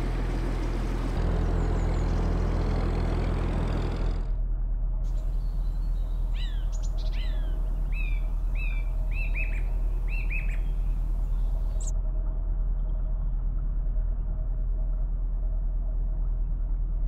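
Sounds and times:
boat engine droning: 0:00.0 - 0:04.4, 0:05.1 - 0:11.9
bird chirps sliding downward: 0:05.3 - 0:11.9.

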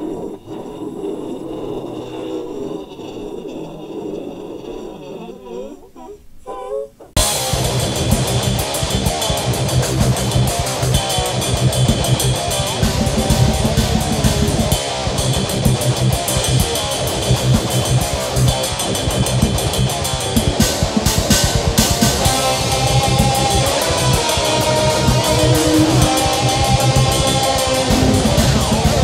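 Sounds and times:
rock music with guitar and drums: 0:07.2 - 0:29.0.

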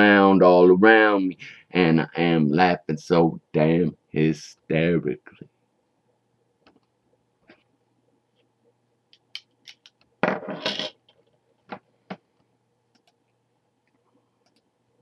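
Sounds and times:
clattering scrape: 0:10.3 - 0:11.0.

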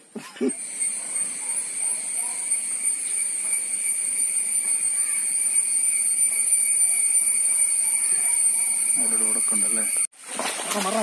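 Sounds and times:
insects droning: 0:00.0 - 0:10.1.

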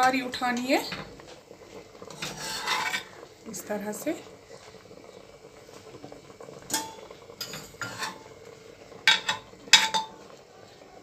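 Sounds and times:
metal ladle clinking in pot: 0:06.7 - 0:08.2, 0:09.1 - 0:10.2.

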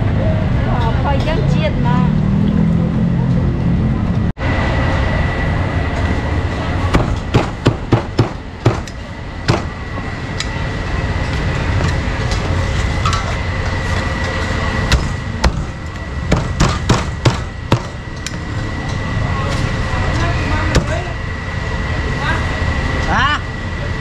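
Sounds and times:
street and traffic noise: 0:00.0 - 0:24.0
cleaver chopping meat: 0:06.9 - 0:08.9, 0:14.9 - 0:15.7, 0:16.3 - 0:18.0.

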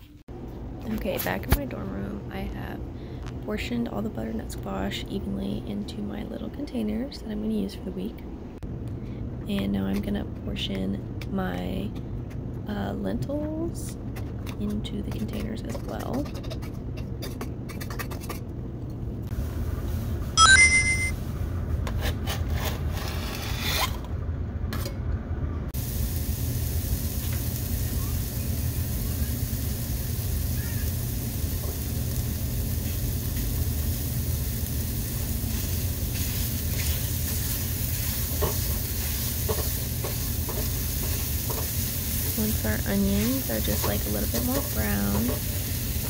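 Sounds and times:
steady low hum: 0:00.0 - 0:20.4
short bright beep: 0:20.4 - 0:21.1
onion sizzling in oil: 0:25.8 - 0:46.0
spatula stirring and scraping pan: 0:35.5 - 0:46.0.

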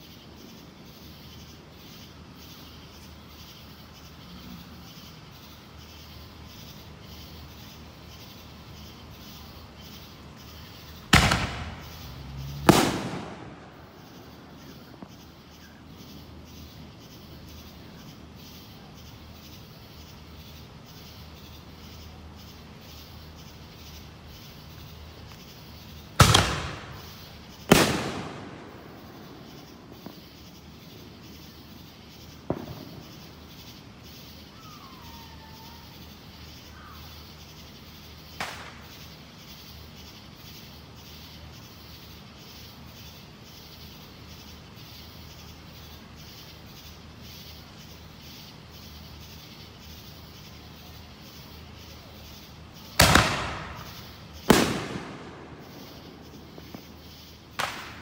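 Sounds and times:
faint firework cracks: 0:11.0 - 0:15.3, 0:26.2 - 0:30.4, 0:32.4 - 0:33.3, 0:38.4 - 0:39.1, 0:53.0 - 0:58.0
fireworks bangs echoing: 0:11.0 - 0:15.8, 0:26.2 - 0:30.4, 0:32.4 - 0:33.7, 0:38.4 - 0:39.0, 0:53.0 - 0:58.0.

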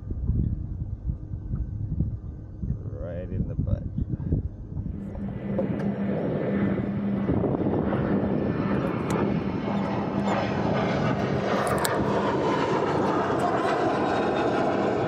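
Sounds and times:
wind: 0:00.0 - 0:15.0
engine drone: 0:04.4 - 0:15.0.

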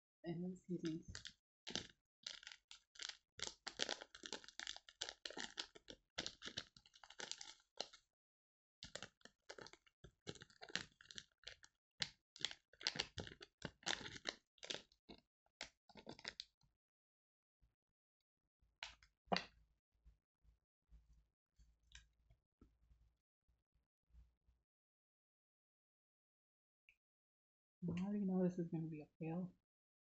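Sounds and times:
plastic packets crinkling: 0:00.8 - 0:08.0, 0:08.8 - 0:16.4.

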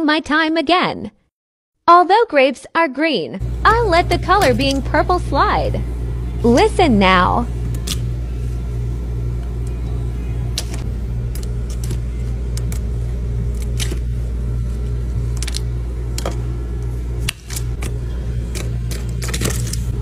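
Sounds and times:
refrigeration unit humming: 0:03.4 - 0:20.0
frozen drink sheets cracking: 0:10.6 - 0:16.4.

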